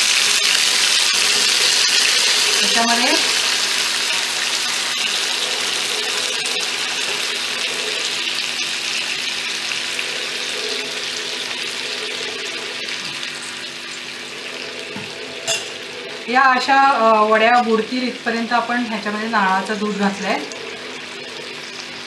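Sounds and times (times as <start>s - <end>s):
liquid pouring into a pan: 0.0s - 16.3s
food sizzling in a pan: 0.0s - 22.0s.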